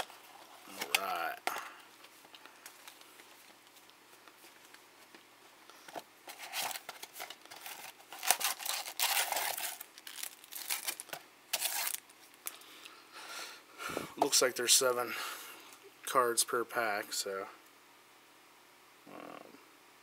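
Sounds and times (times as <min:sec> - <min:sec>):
foil packs crinkling: 0:05.8 - 0:12.6.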